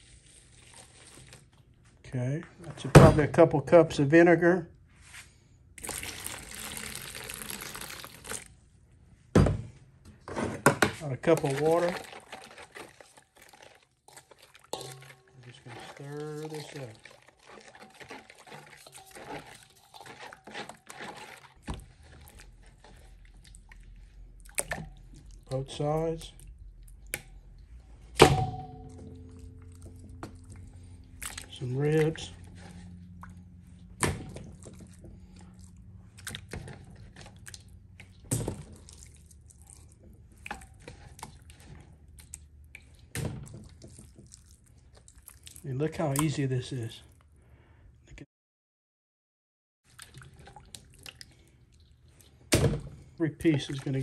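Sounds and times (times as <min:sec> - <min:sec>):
liquid splashing and dripping: 0:05.8 - 0:08.5, 0:11.3 - 0:46.4, 0:49.9 - 0:54.0
spoon stirring in metal bowl: 0:11.0 - 0:25.8, 0:26.9 - 0:45.2
low steady rumble: 0:22.2 - 0:36.3.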